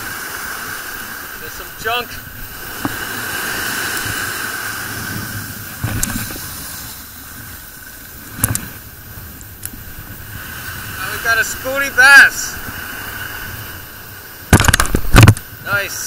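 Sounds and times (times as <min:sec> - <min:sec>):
ocean surf washing on beach: 0:00.0 - 0:16.0
sharp knocks: 0:14.5 - 0:15.4.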